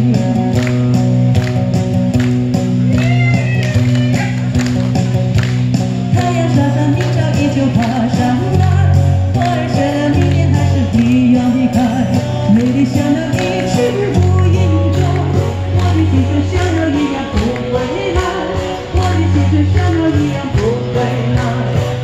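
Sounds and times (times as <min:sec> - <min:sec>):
woman singing into microphone: 0:00.0 - 0:00.9, 0:06.1 - 0:22.0
guitar accompaniment: 0:00.0 - 0:22.0.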